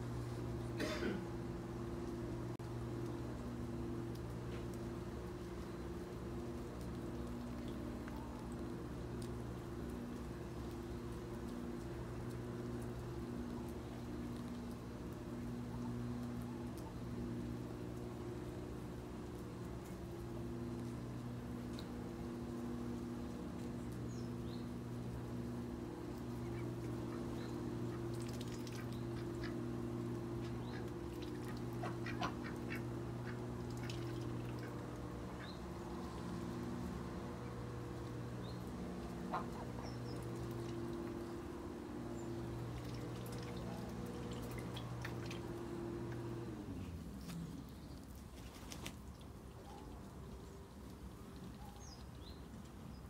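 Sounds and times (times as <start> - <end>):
aircraft engine drone passing: 0.0 - 52.4
low hum: 0.0 - 53.0
small birds chirping: 1.8 - 53.0
ducks calling: 25.6 - 46.4.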